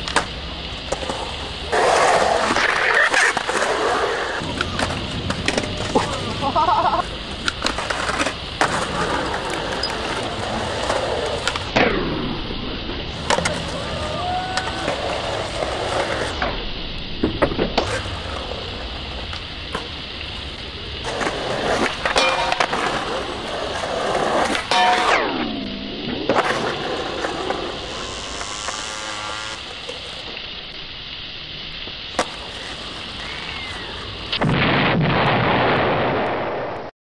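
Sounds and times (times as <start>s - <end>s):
skateboard clacks: 0.0s - 12.4s, 13.1s - 16.5s, 17.2s - 25.2s, 26.3s - 28.5s, 32.1s - 34.4s
skateboard wheels rolling on concrete: 0.0s - 34.5s.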